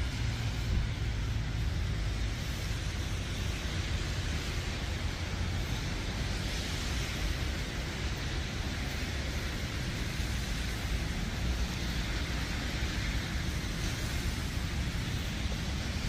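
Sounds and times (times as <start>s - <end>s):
outdoor street ambience: 0.0s - 16.0s.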